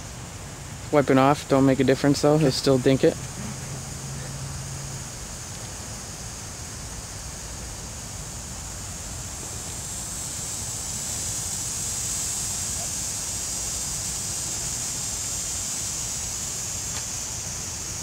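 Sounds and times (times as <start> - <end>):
high-pitched hiss: 0.0 - 18.0.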